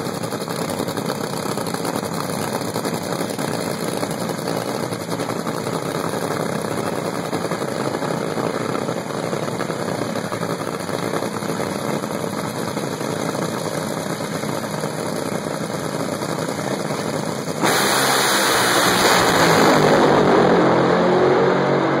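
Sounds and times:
drag racing car engine: 0.0 - 22.0.

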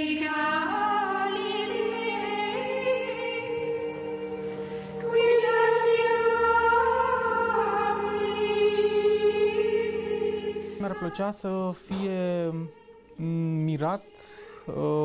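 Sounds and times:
singing on long held notes: 0.0 - 15.0
slow background music: 0.0 - 15.0.

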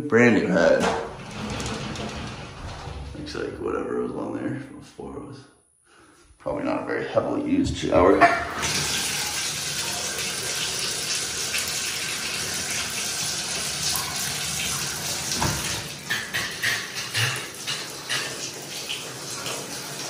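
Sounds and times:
water running into bathtub: 8.2 - 20.0
water spurting and splashing: 8.6 - 20.0.

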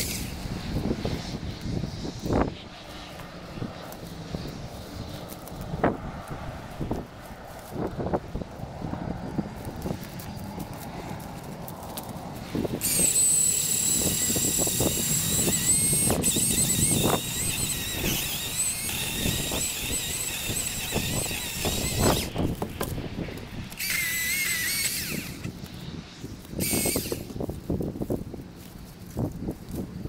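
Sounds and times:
electric chainsaw cutting wood: 0.0 - 8.5, 9.3 - 25.7, 26.4 - 27.5
branches knocking and crackling: 2.8 - 8.7, 9.4 - 13.6, 21.1 - 25.8.

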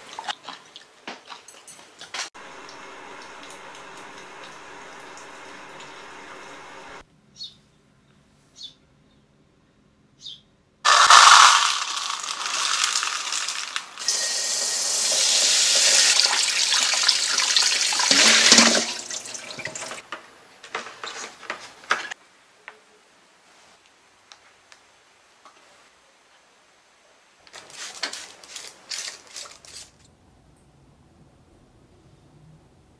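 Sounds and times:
tap water running into colander: 2.4 - 7.0, 10.9 - 20.0
seeds and bowl rattling: 10.9 - 14.6, 27.6 - 30.1.

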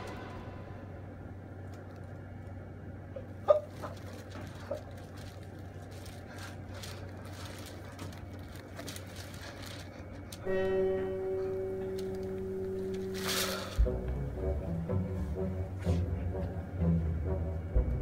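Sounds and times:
steady pitched tone: 0.0 - 1.6
low steady hum: 0.0 - 18.0.

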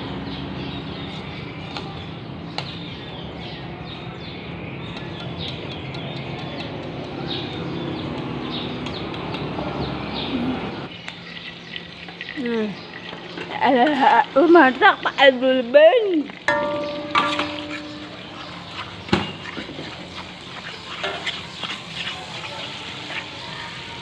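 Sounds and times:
birds chirping: 0.0 - 24.0
leaves sizzling in a wok: 16.0 - 24.0.

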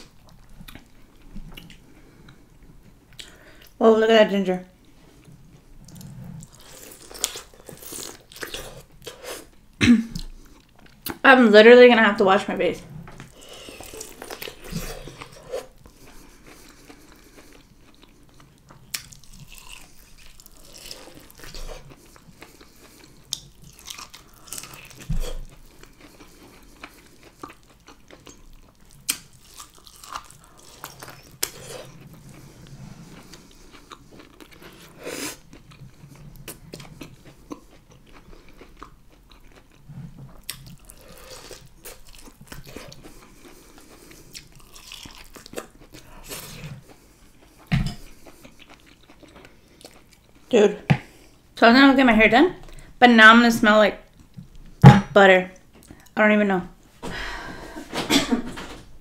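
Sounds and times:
chewing corn on the cob: 13.2 - 50.5.

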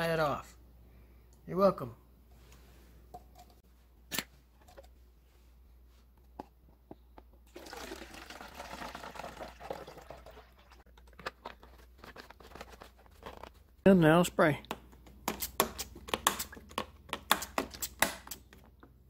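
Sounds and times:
liquid pouring and gurgling: 7.5 - 10.9.

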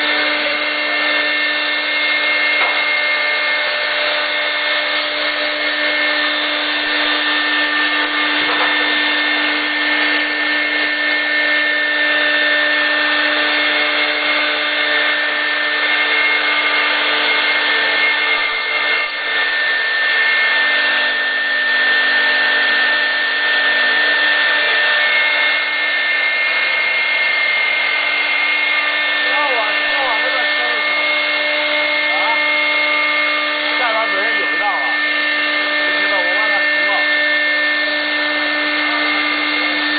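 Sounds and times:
air hose blowing: 0.0 - 39.9
router spindle whining: 0.0 - 39.9.

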